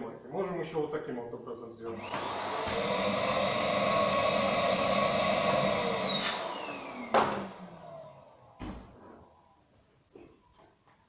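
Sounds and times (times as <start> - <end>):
vacuum cleaner whining: 2.0 - 9.6
knock: 7.1 - 7.4.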